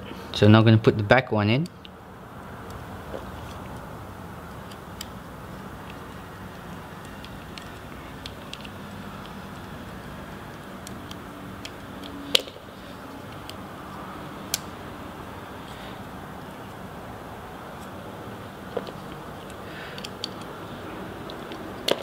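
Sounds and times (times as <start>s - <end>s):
screwdriver driving small screw clicks: 4.5s - 5.2s, 5.8s - 12.5s, 13.3s - 14.7s, 19.1s - 20.5s.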